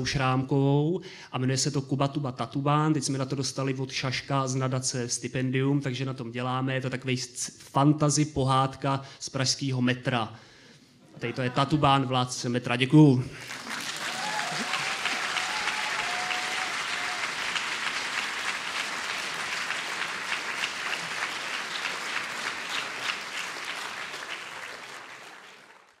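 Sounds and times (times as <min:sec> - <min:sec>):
audience applauding: 0:13.4 - 0:26.0.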